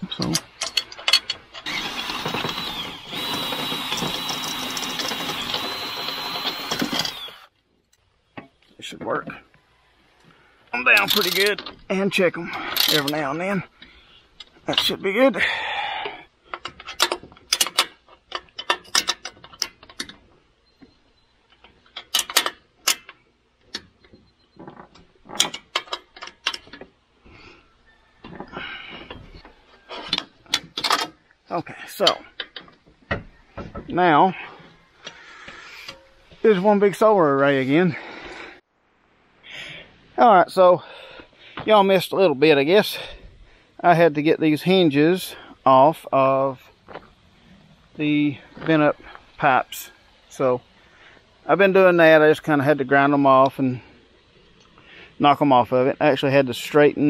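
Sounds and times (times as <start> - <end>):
power drill motor whining: 1.6 - 7.5.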